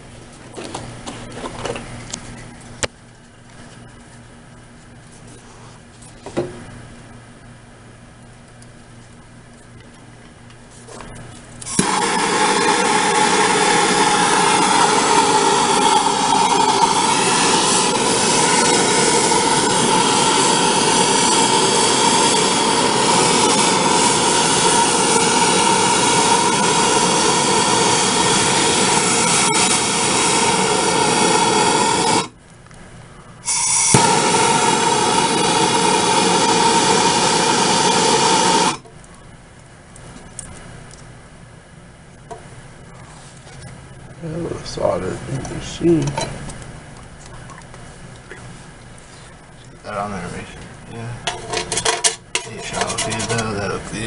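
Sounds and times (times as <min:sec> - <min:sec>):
torch flame roaring: 0:10.9 - 0:39.1, 0:52.6 - 0:54.0.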